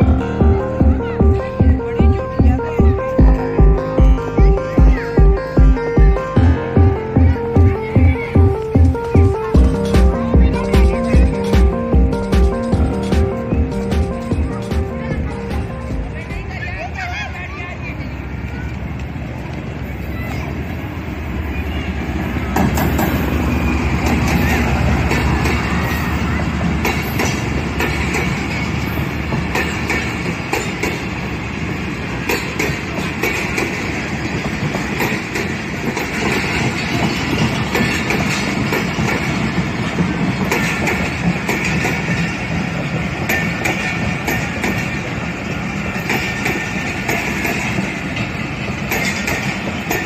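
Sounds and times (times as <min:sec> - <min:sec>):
diesel locomotive engine hum: 0:00.0 - 0:50.0
train coaches rumbling past: 0:00.0 - 0:50.0
wheels clicking over rail joints: 0:22.5 - 0:50.0.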